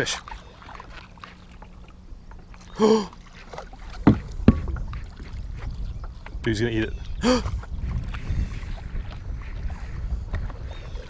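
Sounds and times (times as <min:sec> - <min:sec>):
wind and water rumble: 0:00.0 - 0:11.0
sharp knocks: 0:03.9 - 0:05.0.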